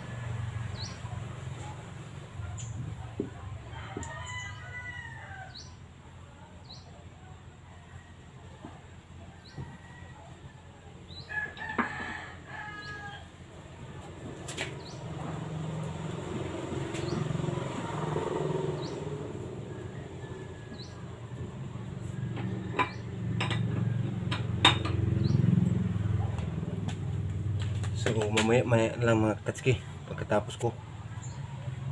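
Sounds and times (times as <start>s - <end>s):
rooster crowing: 3.5s - 5.8s, 7.6s - 13.4s, 17.0s - 24.0s
small birds chirping: 14.7s - 15.2s, 16.8s - 17.9s, 18.7s - 19.1s.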